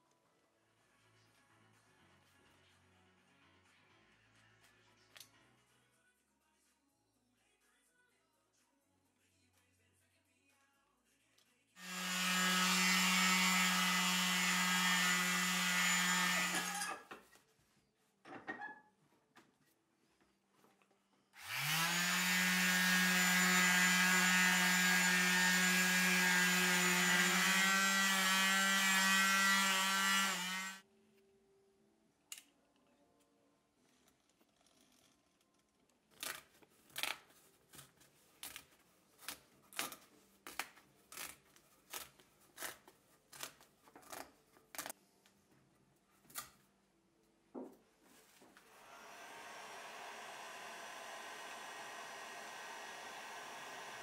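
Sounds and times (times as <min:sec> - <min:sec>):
electric sander whining: 0:11.8 - 0:16.7, 0:21.4 - 0:30.8, 0:48.9 - 0:54.0.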